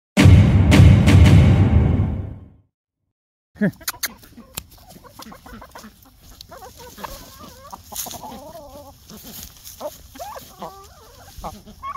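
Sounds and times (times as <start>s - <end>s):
hens clucking: 3.6s - 11.9s.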